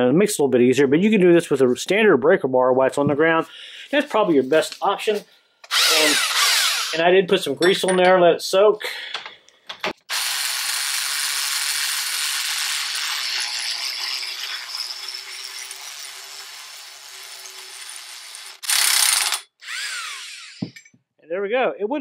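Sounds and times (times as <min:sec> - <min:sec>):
impact wrench hammering: 0:20.5 - 0:21.0.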